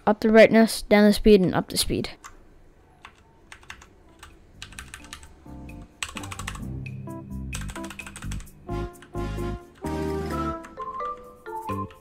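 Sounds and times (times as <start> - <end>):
background music with bass line: 5.5 - 10.8.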